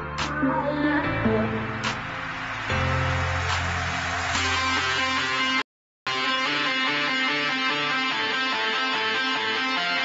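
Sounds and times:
guitar music: 4.4 - 10.0.

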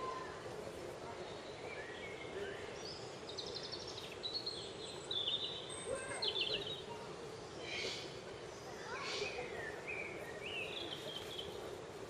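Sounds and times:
outdoor background noise: 0.0 - 12.0
songbirds trilling: 0.0 - 12.0.

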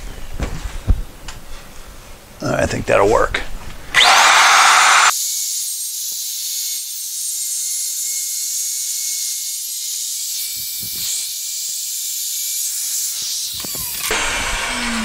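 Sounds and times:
router hissing and whining: 4.0 - 15.0.

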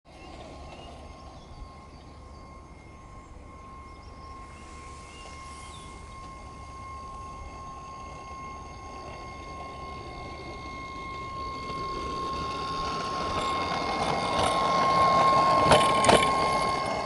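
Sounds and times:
model railbus whining: 0.0 - 17.0
sharp clacks on track: 6.2 - 17.0.

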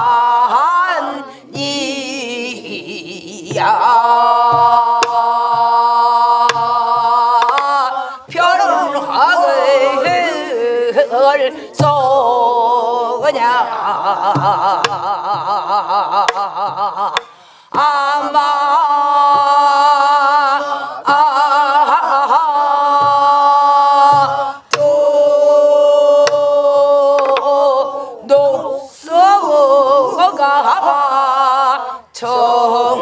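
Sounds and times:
class singing along: 0.0 - 33.0
woman singing folk song: 0.0 - 33.0
barrel drum strokes: 3.4 - 10.6, 22.9 - 25.5.

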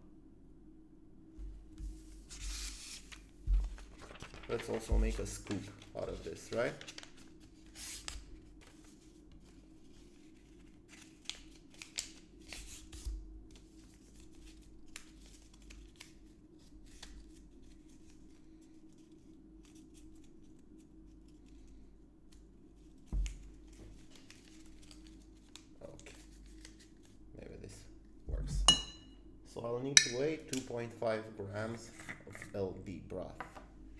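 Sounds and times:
paper rustling and crinkling: 1.8 - 27.2.

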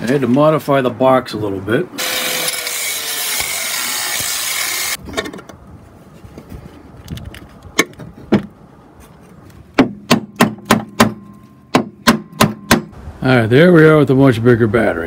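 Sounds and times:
angle grinder grinding steel: 2.0 - 5.0
metal-on-metal knocks: 9.8 - 13.0.

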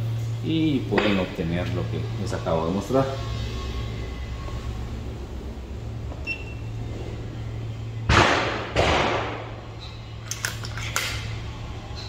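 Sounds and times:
air rifle shots: 8.1 - 9.5
rifle action clicks: 10.2 - 11.2.

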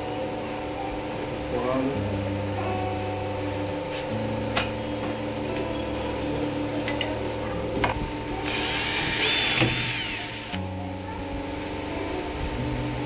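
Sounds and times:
electric drill boring wood: 8.4 - 10.6.

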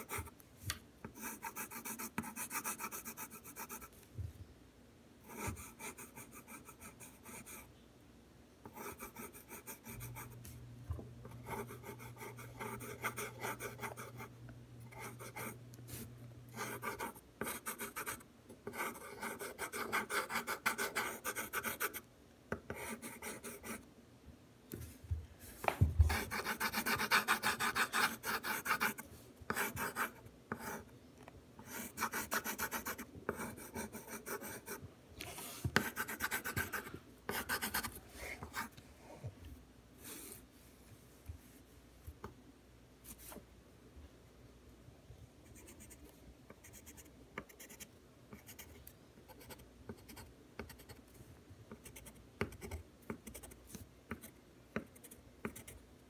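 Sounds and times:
pencil scratching on paper: 1.2 - 3.9, 5.3 - 7.7, 8.7 - 10.4, 11.3 - 14.3, 14.9 - 22.0, 22.7 - 23.8, 26.0 - 30.9, 31.6 - 34.8, 35.7 - 38.8.

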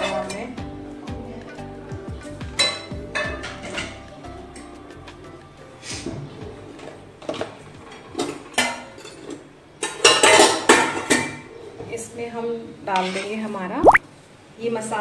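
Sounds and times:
utensils clattering against dishes: 7.2 - 11.5.

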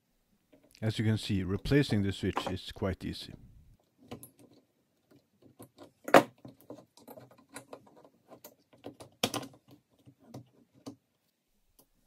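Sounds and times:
plastic and metal clicks and rattles: 3.9 - 11.0.

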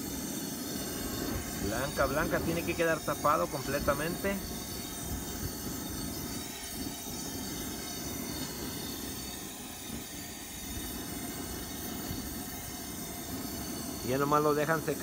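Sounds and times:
wind buffeting microphone: 1.0 - 9.0.

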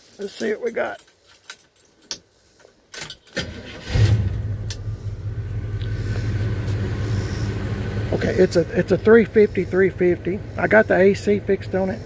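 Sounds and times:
engine cranking and idling: 3.3 - 12.0.

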